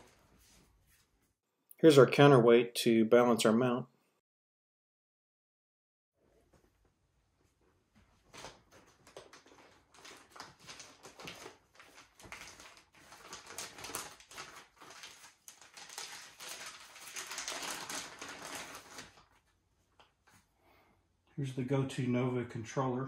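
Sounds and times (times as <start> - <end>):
plastic bag crinkling: 8.3 - 19.4.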